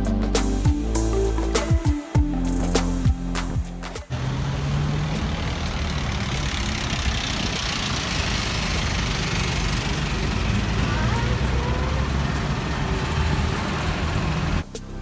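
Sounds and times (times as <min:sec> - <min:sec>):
music: 0:00.0 - 0:04.1, 0:14.6 - 0:15.0
road noise: 0:02.6 - 0:15.0
truck engine passing: 0:04.0 - 0:14.7.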